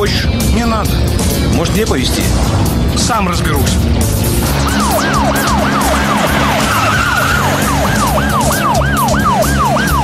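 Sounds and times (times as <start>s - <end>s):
electronic siren with falling sweeps: 4.5s - 10.0s.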